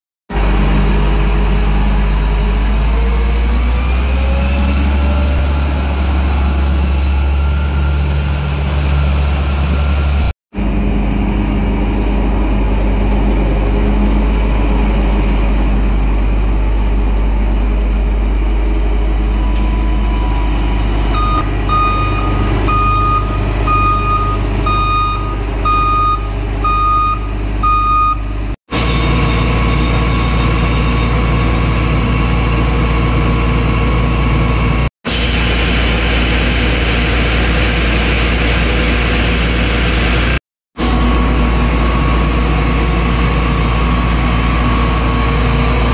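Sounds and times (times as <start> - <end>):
diesel engine running: 0.3 - 45.9
reversing alarm beeping: 6.9 - 10.3, 19.3 - 33.0.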